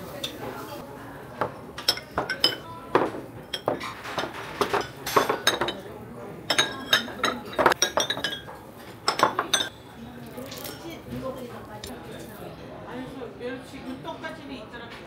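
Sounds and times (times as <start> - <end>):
ceramic plates clinking: 1.4 - 9.8.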